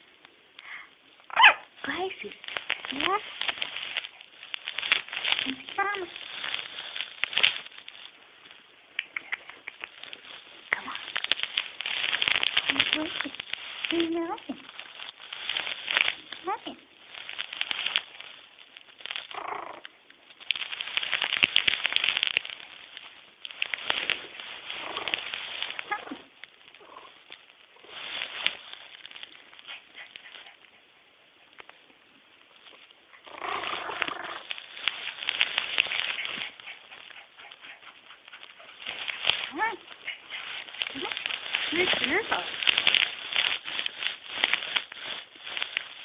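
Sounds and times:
small dog straining to bark: 0:01.3 - 0:01.8, 0:19.3 - 0:19.9
dog paws clicking: 0:01.8 - 0:30.9, 0:33.5 - 0:46.0
sharp clicks and scuffles: 0:08.9 - 0:18.4.

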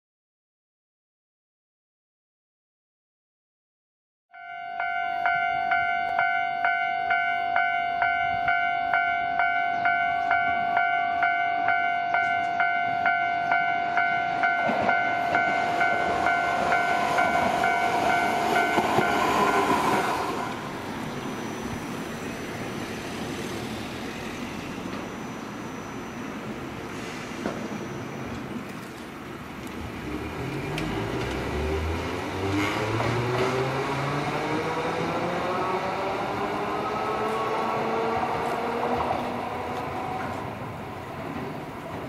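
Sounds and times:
level crossing alarm bell ringing: 0:04.4 - 0:19.6
tram running noise: 0:04.4 - 0:42.0.

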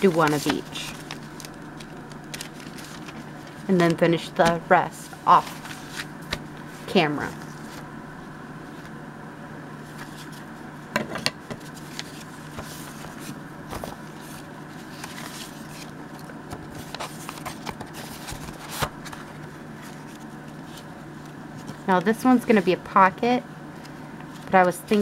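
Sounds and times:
paper rustling and scraping: 0:00.0 - 0:07.9, 0:09.8 - 0:10.6, 0:11.5 - 0:22.7
steady low hum: 0:00.0 - 0:25.0.

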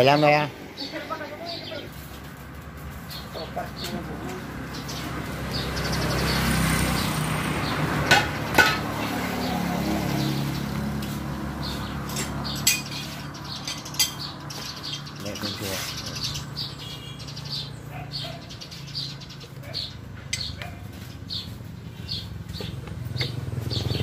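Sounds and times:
sharp metallic clinks: 0:12.0 - 0:15.6
vehicle engine running: 0:20.1 - 0:24.0.

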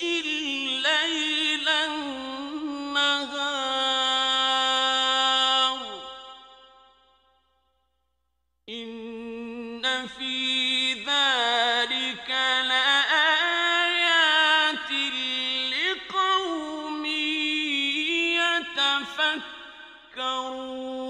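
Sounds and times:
man chanting melodically: 0:00.0 - 0:06.7, 0:08.8 - 0:21.0.

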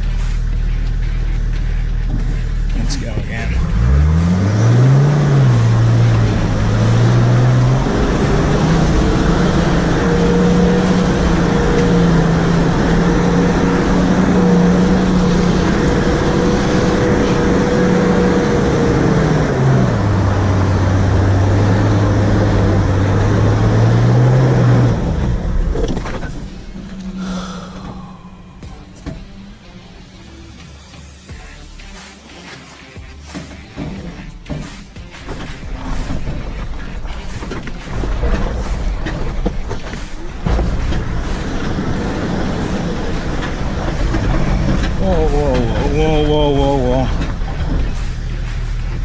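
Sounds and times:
diesel engine pulling under load: 0:00.0 - 0:31.2, 0:33.3 - 0:49.0.

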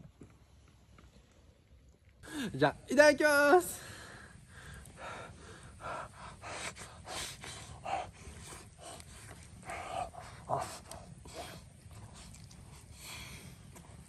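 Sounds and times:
person chewing and biting: 0:12.1 - 0:12.6.

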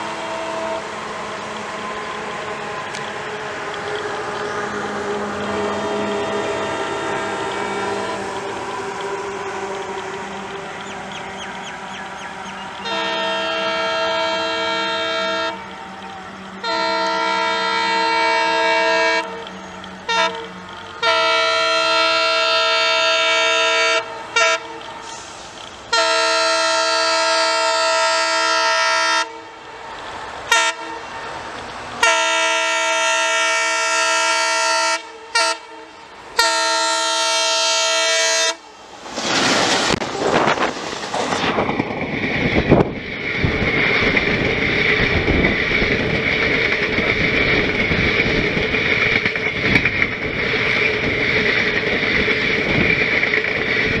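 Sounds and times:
locomotive air horn blasts: 0:00.0 - 0:03.5, 0:05.1 - 0:29.6, 0:30.5 - 0:31.1, 0:32.0 - 0:38.6
wheels clacking over rail joints: 0:00.0 - 0:34.3, 0:37.8 - 0:54.0
train passing with roar: 0:00.0 - 0:54.0.

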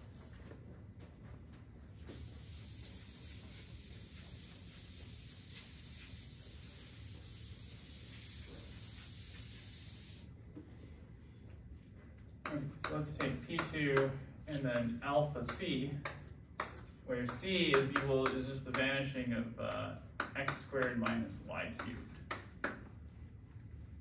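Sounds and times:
eraser rubbing on chalkboard: 0:01.9 - 0:10.3.

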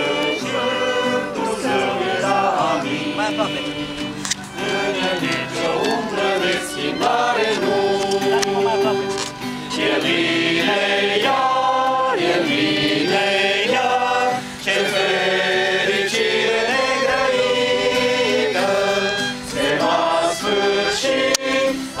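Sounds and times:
acoustic guitar: 0:00.0 - 0:22.0
group singing a hymn: 0:00.0 - 0:22.0.

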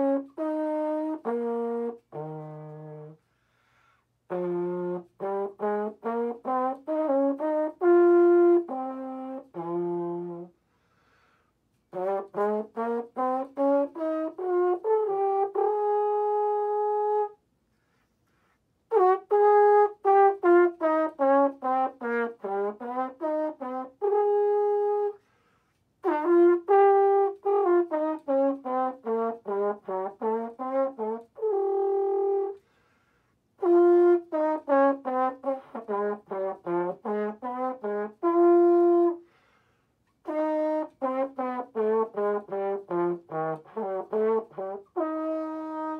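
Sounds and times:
valve trombone playing scales: 0:00.0 - 0:10.6, 0:11.8 - 0:17.4, 0:18.8 - 0:25.4, 0:26.0 - 0:32.7, 0:33.4 - 0:39.5, 0:40.1 - 0:45.9
player breathing: 0:03.2 - 0:04.1, 0:10.6 - 0:11.6, 0:39.2 - 0:40.0.

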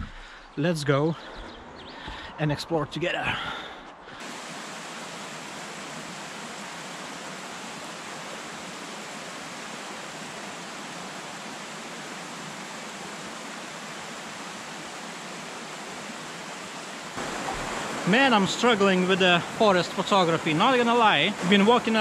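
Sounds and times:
stream rushing: 0:04.0 - 0:22.0.

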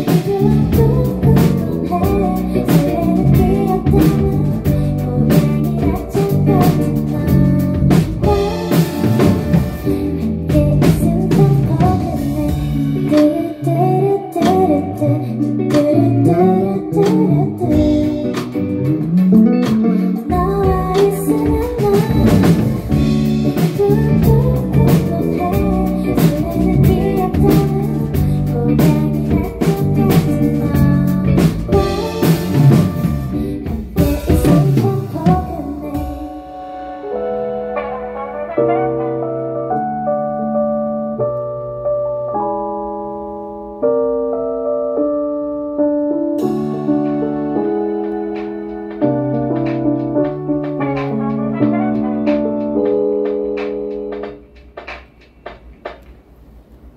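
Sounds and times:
woman singing: 0:00.0 - 0:18.8, 0:19.9 - 0:38.0
drum kit: 0:00.0 - 0:40.4, 0:46.2 - 0:56.9
guitar: 0:00.0 - 0:43.9, 0:46.0 - 0:55.0.

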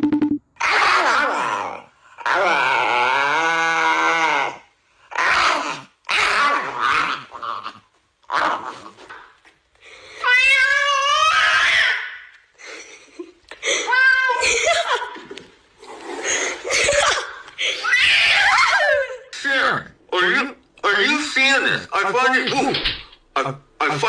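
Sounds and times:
dog howling: 0:00.6 - 0:08.8.

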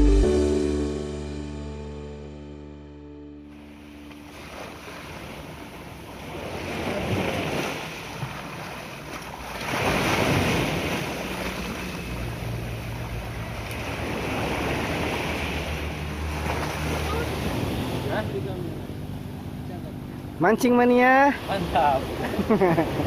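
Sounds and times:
sea waves breaking on boulders: 0:03.5 - 0:18.6, 0:20.9 - 0:23.0.

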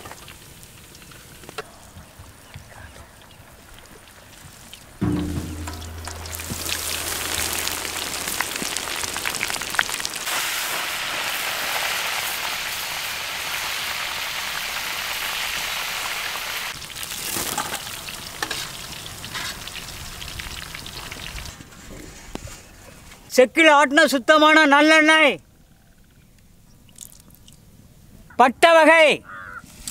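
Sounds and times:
oil crackling and sizzling: 0:00.0 - 0:22.5.

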